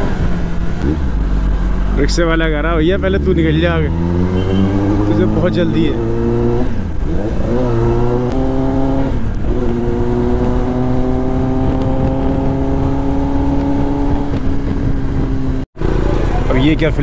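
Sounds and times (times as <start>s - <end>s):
motorcycle engine accelerating: 0.0s - 17.0s.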